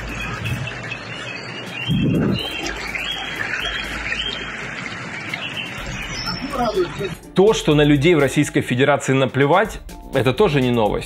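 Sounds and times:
floodwater rushing: 0.0 - 7.3
birds chirping: 0.0 - 7.4
low rumble: 1.9 - 3.0.

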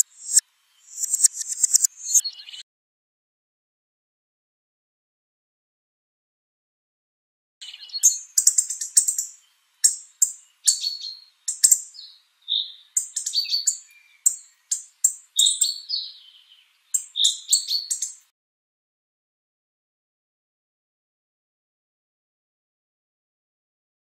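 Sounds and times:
bird clicking notes and whistles: 0.0 - 2.2, 17.0 - 18.2.

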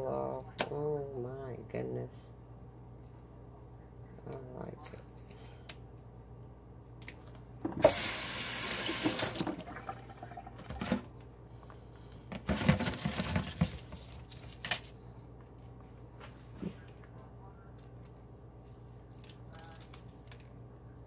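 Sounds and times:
tap water splashing into sink: 7.7 - 11.0.

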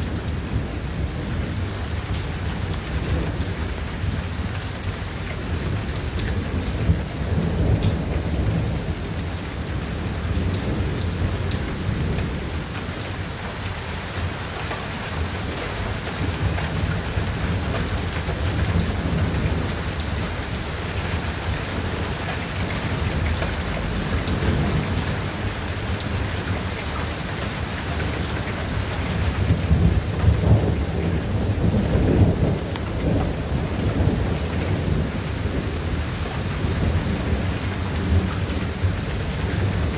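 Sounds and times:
rain falling: 0.0 - 39.9
raindrops ticking: 0.0 - 39.9
rolling thunder: 28.1 - 39.9.

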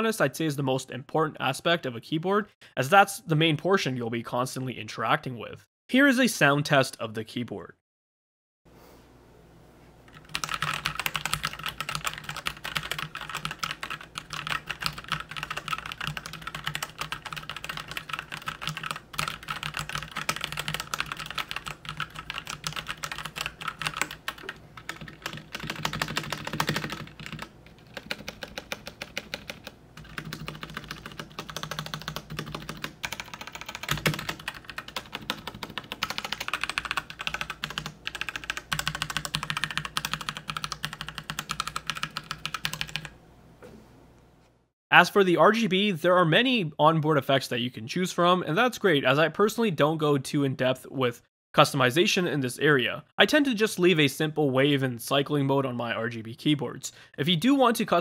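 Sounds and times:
mechanical keyboard typing: 10.1 - 43.1.

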